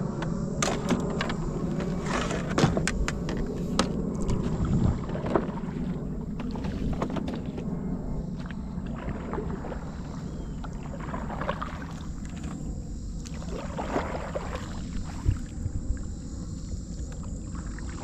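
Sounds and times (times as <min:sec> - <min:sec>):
steady low rumble: 0:00.0 - 0:18.0
knocks and taps in boat: 0:00.1 - 0:07.7.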